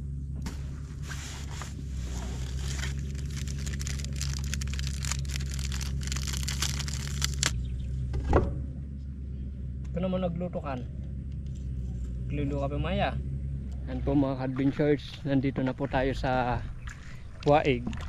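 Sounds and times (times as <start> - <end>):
low hum: 0.0 - 18.0
crinkling rustle: 0.5 - 7.6
thump: 8.1 - 8.6.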